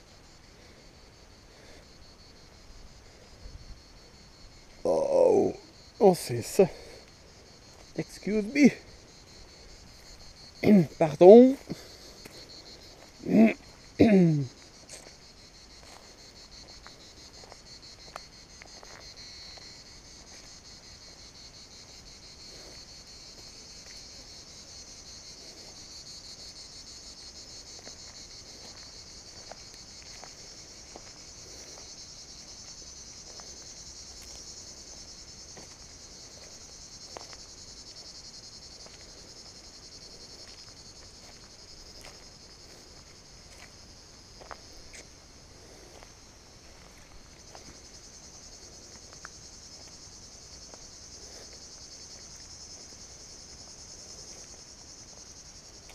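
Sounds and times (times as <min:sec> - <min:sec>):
insects chirring: 0:00.0 - 0:55.9
person's voice: 0:04.9 - 0:07.0, 0:08.0 - 0:08.9, 0:10.6 - 0:11.9, 0:13.2 - 0:14.6.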